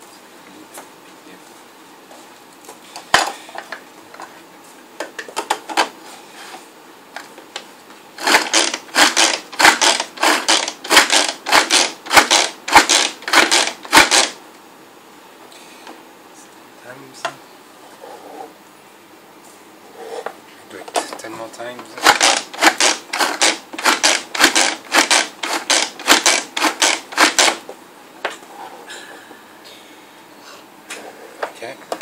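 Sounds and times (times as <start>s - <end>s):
food chopper blades chopping: 8.2s - 14.4s, 21.9s - 27.6s.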